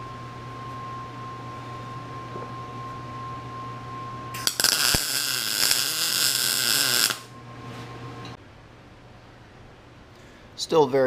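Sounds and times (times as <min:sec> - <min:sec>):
steady low hum: 0:00.0 - 0:11.0
welder arc crackling and hissing: 0:04.4 - 0:07.3.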